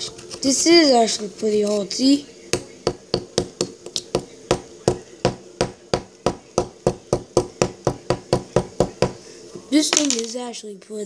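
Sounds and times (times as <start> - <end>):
digging tool tapping clay block: 2.6 - 9.2.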